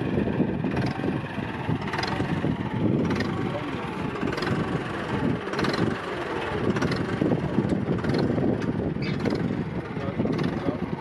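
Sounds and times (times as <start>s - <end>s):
tractor engine rumbling: 0.0s - 11.0s.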